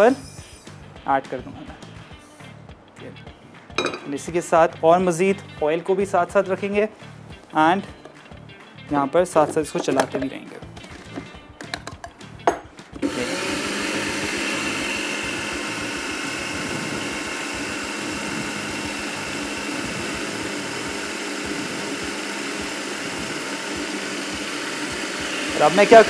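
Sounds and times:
food processor grinding seeds: 13.0 - 26.0.

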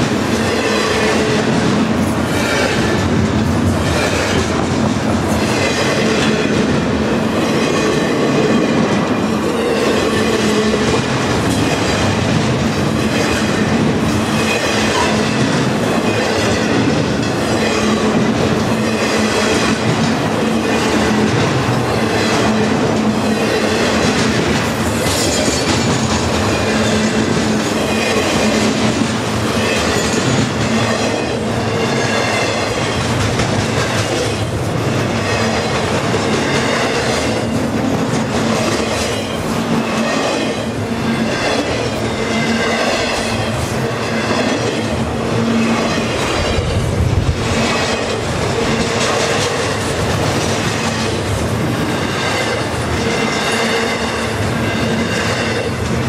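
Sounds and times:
train wheels clicking over rail joints: 0.0 - 56.0
wheels squealing against rails: 12.9 - 19.8, 20.5 - 33.1, 38.8 - 46.9.

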